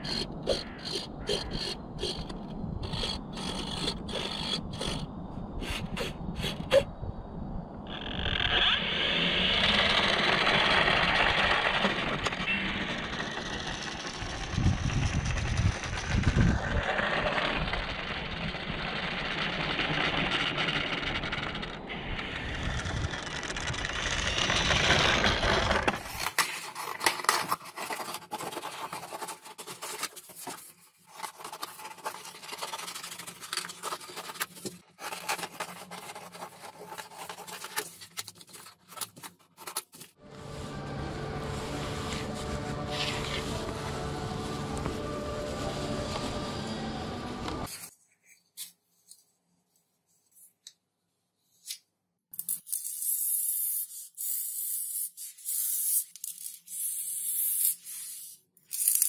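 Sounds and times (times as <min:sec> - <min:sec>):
electric motor and propeller running: 0:00.0 - 0:05.8, 0:08.1 - 0:26.3, 0:40.2 - 0:47.7
scissors snipping paper: 0:25.9 - 0:40.2.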